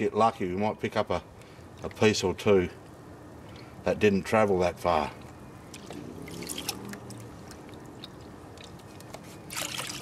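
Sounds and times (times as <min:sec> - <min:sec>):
water sloshing and trickling: 0:05.7 - 0:10.0
water splash: 0:06.2 - 0:07.2.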